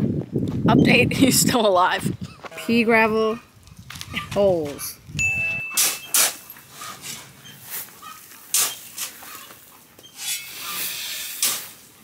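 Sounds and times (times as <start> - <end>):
shovel scraping gravel: 5.8 - 12.0.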